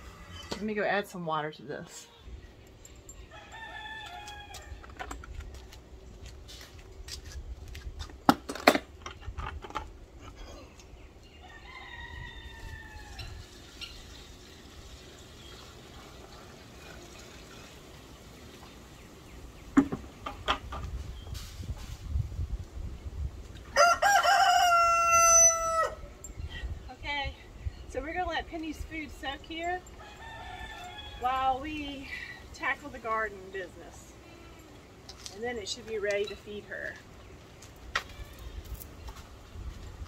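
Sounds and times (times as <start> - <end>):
rooster crowing: 3.3 - 4.9, 11.4 - 13.4, 23.7 - 26.1, 30.0 - 31.2.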